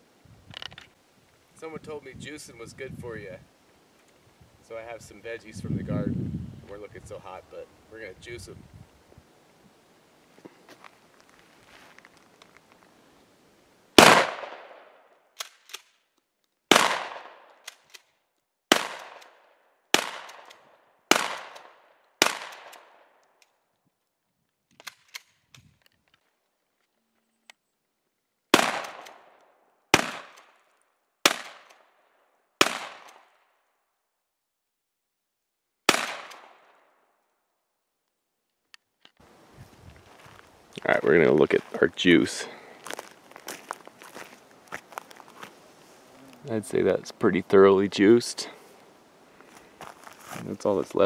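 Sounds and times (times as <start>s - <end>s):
gunshots with echo: 14.0s - 14.8s, 16.7s - 17.4s.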